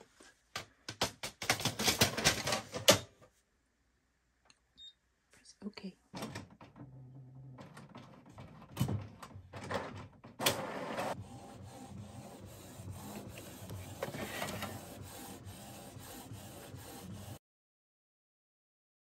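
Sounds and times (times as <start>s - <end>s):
printer motors whirring: 10.4s - 17.4s.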